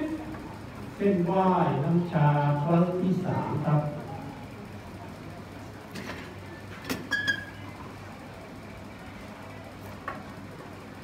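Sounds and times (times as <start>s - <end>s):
steady low hum: 0.0s - 6.8s.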